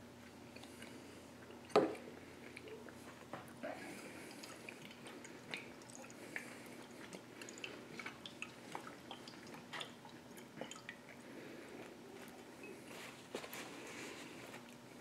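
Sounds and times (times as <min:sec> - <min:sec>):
liquid sloshing in glass bottle: 0:03.8 - 0:11.2.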